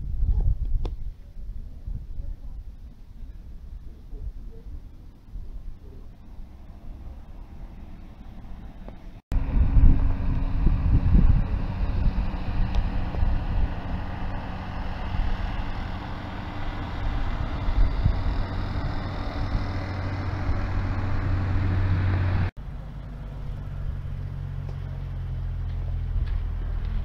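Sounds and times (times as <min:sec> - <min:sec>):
motor humming and rushing: 0:06.1 - 0:27.0.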